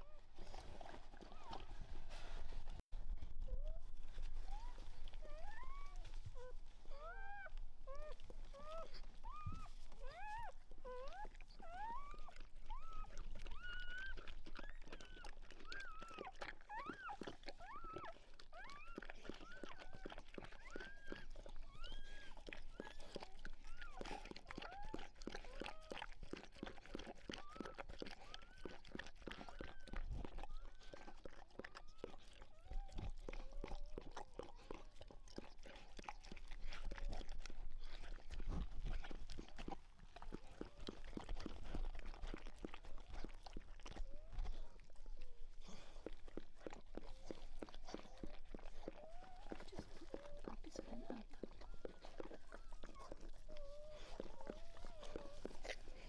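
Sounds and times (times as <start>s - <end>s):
dog licking and chewing: 0.0s - 2.8s, 3.5s - 56.0s
puppies squeaking: 4.5s - 25.8s.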